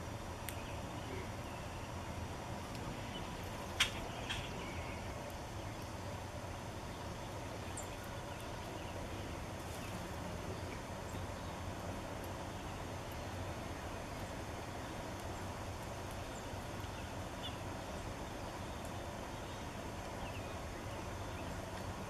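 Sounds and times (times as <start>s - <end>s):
faint bird chirps: 0.4s - 2.1s, 2.9s - 5.9s, 6.9s - 11.6s.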